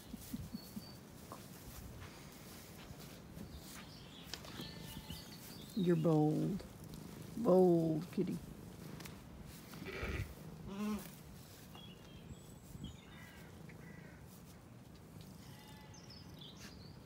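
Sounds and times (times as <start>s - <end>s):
small birds chirping: 0.0s - 17.0s
sheep bleating: 9.8s - 11.1s, 15.4s - 16.0s.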